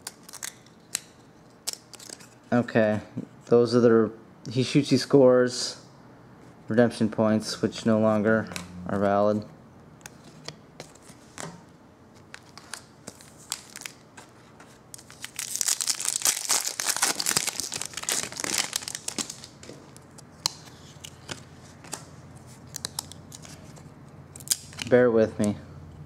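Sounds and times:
plastic wrapper tearing and crinkling: 0.0 - 1.0, 12.3 - 14.0, 14.9 - 19.7, 22.7 - 23.6, 24.4 - 24.9.

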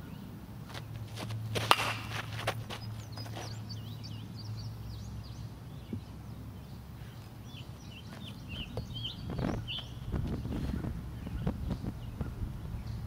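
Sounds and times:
bat hitting baseball: 1.6 - 2.6
small birds chirping: 2.1 - 13.0.

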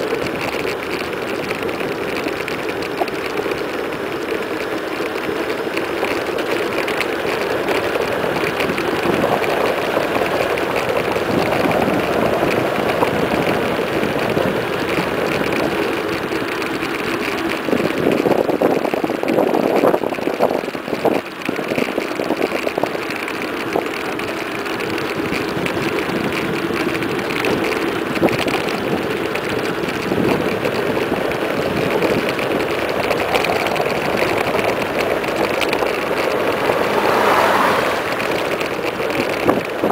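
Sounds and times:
bike tyre noise on asphalt: 0.0 - 39.9
wind rushing over microphone: 31.7 - 39.9.

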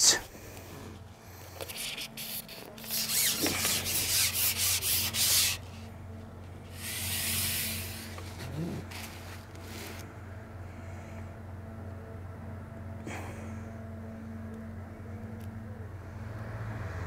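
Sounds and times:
fishing pole rasping through hands: 1.6 - 5.6, 6.7 - 10.0.

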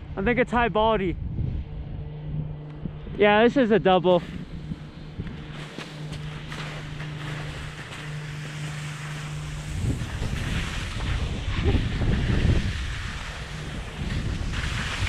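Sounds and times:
steady low hum: 0.0 - 15.0
wind buffeting microphone: 0.0 - 15.0
skis scraping through snow: 5.3 - 15.0.

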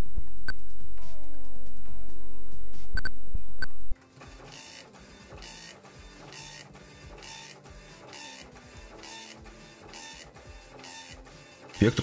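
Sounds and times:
dot-matrix printer buzzing: 4.0 - 12.0.

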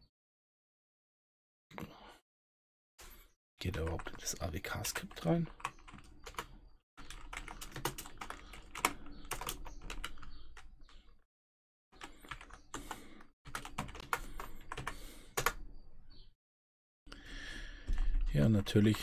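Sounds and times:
typing on computer keyboard: 3.7 - 11.0, 12.0 - 15.6.

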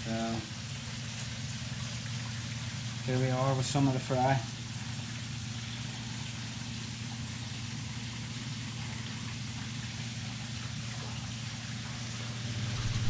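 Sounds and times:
water bubbling in a fish tank: 0.0 - 13.0
low hum: 11.5 - 13.0.

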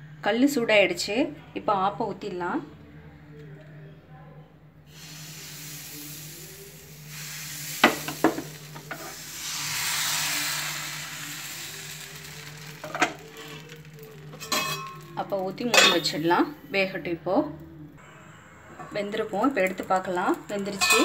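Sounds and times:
batter sizzling in a hot pan: 4.9 - 16.2.

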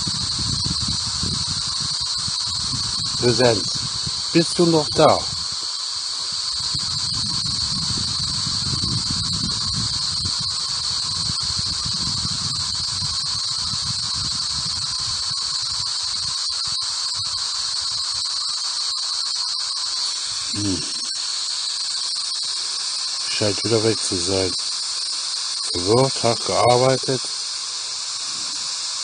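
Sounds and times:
high-pitched whine: 0.0 - 29.0
static hiss: 0.0 - 29.0
low garbled sound: 4.4 - 5.3, 20.4 - 21.2, 25.7 - 27.3.

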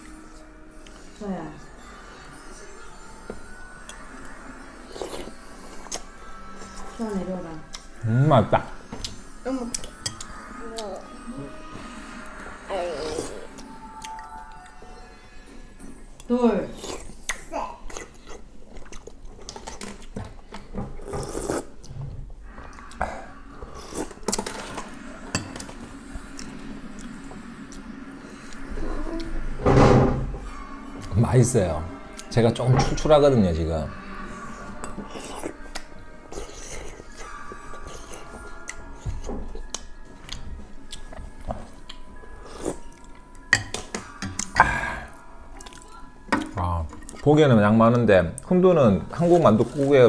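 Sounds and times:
chewing: 3.2 - 7.0, 7.7 - 8.0, 12.2 - 14.9, 16.2 - 29.4, 32.1 - 32.4, 34.4 - 47.3
slurping broth: 21.0 - 22.0.

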